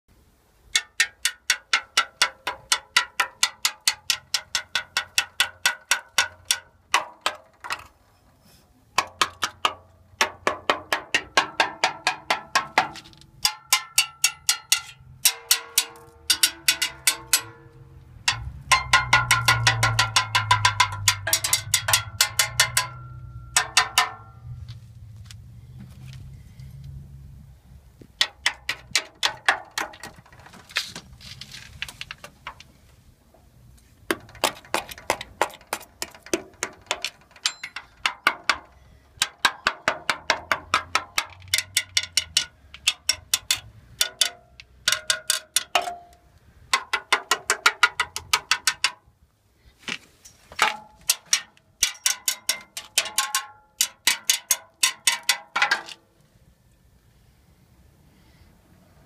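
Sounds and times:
metal rod tapping steel rail: 0.7s - 7.9s, 9.0s - 24.4s, 28.2s - 30.4s, 34.1s - 49.0s, 50.6s - 56.0s.

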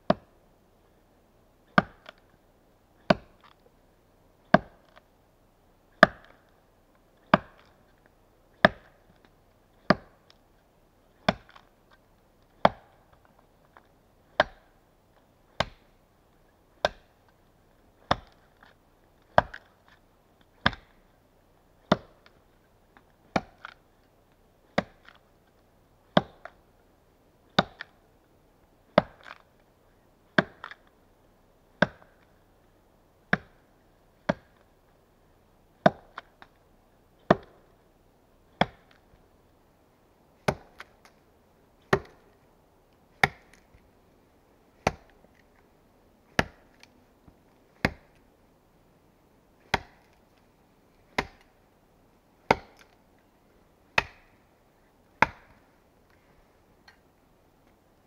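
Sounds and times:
axe chopping log: 0.1s - 0.3s, 1.7s - 2.2s, 3.0s - 3.5s, 4.5s - 5.0s, 6.0s - 6.5s, 7.3s - 7.8s, 8.6s - 9.1s, 9.8s - 10.3s, 11.2s - 11.7s, 12.6s - 13.0s, 14.3s - 14.7s, 15.6s - 15.9s, 16.8s - 17.1s, 18.0s - 18.4s, 19.3s - 19.7s, 20.6s - 21.0s, 21.9s - 22.3s, 23.3s - 23.8s, 24.7s - 25.2s, 26.1s - 26.6s, 27.5s - 27.9s, 28.9s - 29.4s, 30.3s - 30.9s, 31.8s - 32.2s, 33.3s - 33.6s, 34.2s - 34.6s, 35.8s - 36.5s, 37.2s - 37.7s, 38.6s - 39.0s, 40.4s - 41.2s, 41.8s - 42.2s, 43.2s - 43.7s, 44.8s - 45.2s, 46.3s - 46.9s, 47.7s - 48.2s, 49.6s - 50.2s, 51.1s - 51.5s, 52.5s - 53.0s, 53.9s - 54.4s, 55.2s - 55.6s.

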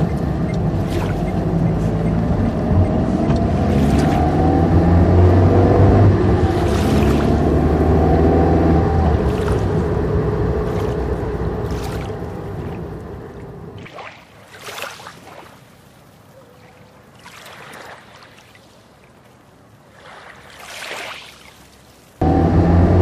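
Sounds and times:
water lapping: 0.0s - 5.0s, 6.2s - 7.8s, 9.0s - 22.2s
car engine driving off: 0.0s - 13.8s, 22.2s - 23.0s
waves washing in: 0.0s - 23.0s.

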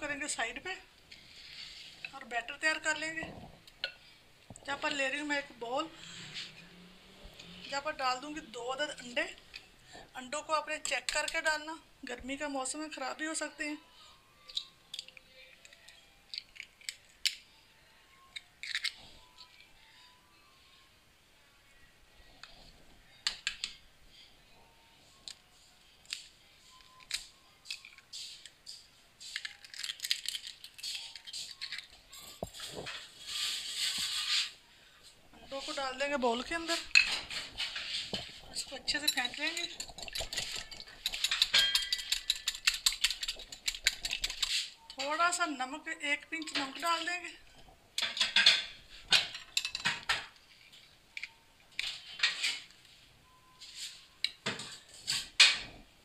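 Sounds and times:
eggshell crackling: 29.2s - 45.0s
whisk clinking against glass bowl: 39.0s - 44.5s.

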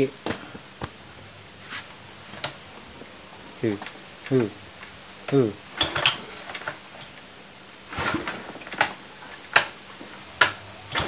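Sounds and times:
scooter engine rushing clatter: 7.9s - 8.9s.

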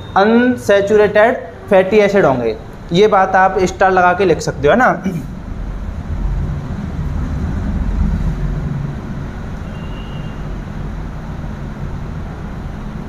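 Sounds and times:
low mechanical rumble: 0.0s - 13.0s.

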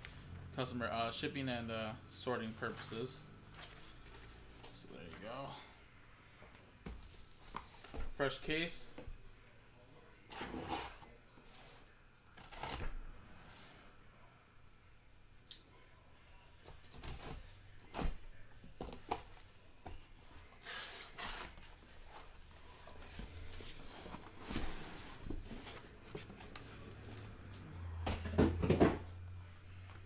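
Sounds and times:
cardboard and wrap rustling: 20.2s - 27.5s
boxes thumping down: 28.0s - 29.1s.

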